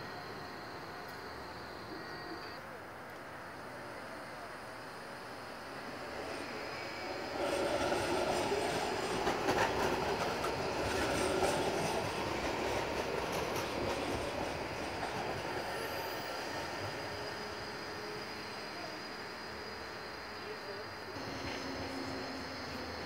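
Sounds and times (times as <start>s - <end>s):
tram wheels clicking over rails: 7.3s - 17.2s
high squeal: 14.9s - 20.6s.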